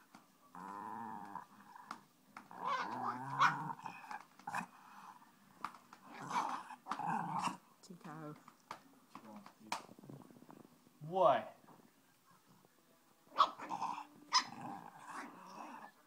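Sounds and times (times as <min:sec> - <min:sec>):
puppy growling: 0:00.5 - 0:05.2, 0:06.0 - 0:07.6, 0:13.3 - 0:16.0.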